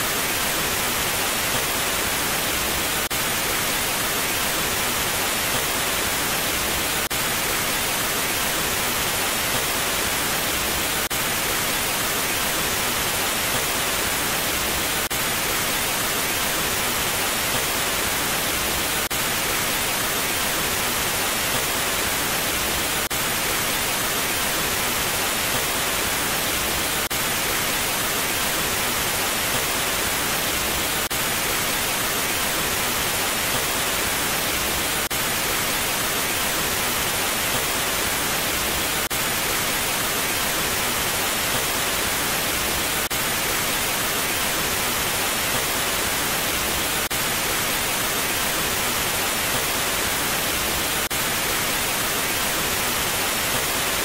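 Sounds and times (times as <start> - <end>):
tv static hiss: 0.0 - 54.0.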